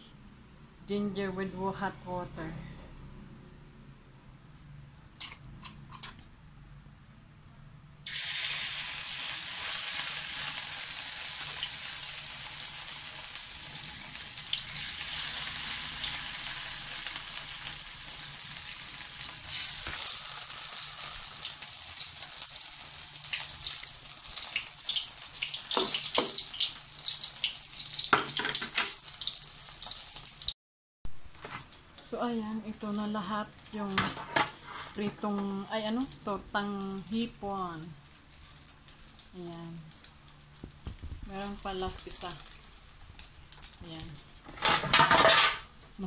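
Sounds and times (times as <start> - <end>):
batter sizzling in hot oil: 8.0 - 30.6, 31.3 - 44.6
oil crackling pops: 38.3 - 44.5.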